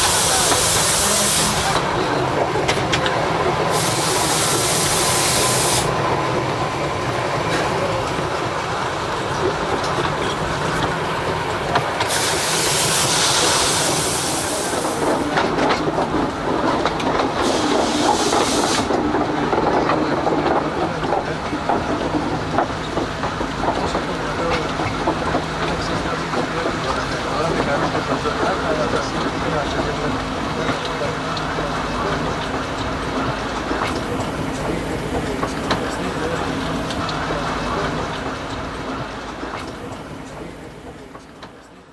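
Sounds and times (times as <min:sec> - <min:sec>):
steam hissing: 0:00.0 - 0:01.9, 0:03.6 - 0:06.0, 0:12.0 - 0:15.5, 0:17.4 - 0:19.0
clatter of wheels on rail: 0:00.0 - 0:41.9.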